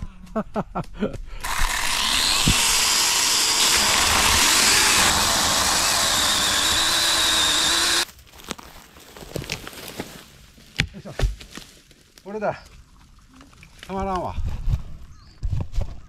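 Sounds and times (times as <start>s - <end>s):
chainsaw cutting wood: 1.4s - 8.1s.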